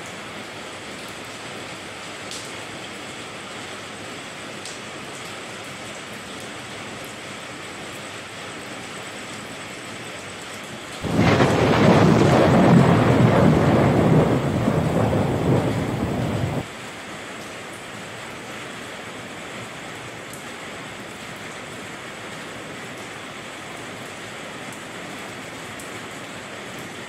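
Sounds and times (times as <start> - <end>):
steady rain falling: 0.0 - 27.0
thunder crack and rumble: 11.0 - 16.7.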